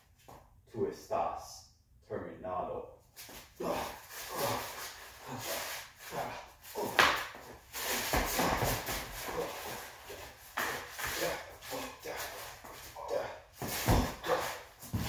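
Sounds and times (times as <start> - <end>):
sandals shuffling on concrete: 3.1 - 15.0
body falling to the floor: 6.8 - 9.6, 13.6 - 15.0.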